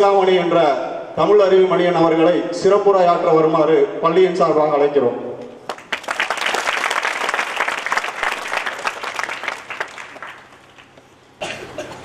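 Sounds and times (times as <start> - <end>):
audience applauding: 5.6 - 11.1.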